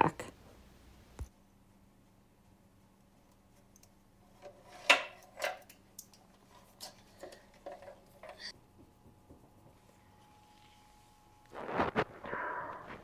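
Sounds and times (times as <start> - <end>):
hands handling wiring in metal box: 3.7 - 8.5.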